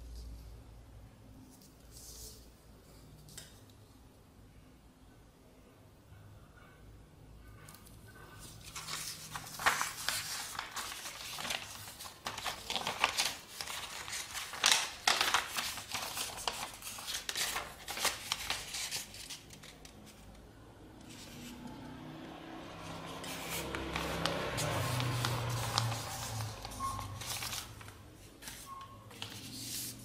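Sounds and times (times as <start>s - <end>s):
paper rustling and crinkling: 8.4s - 20.2s, 23.0s - 30.0s.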